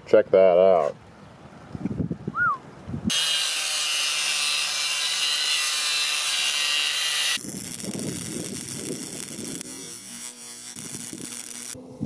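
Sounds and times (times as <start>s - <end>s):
angle grinder cutting steel: 3.1s - 11.8s.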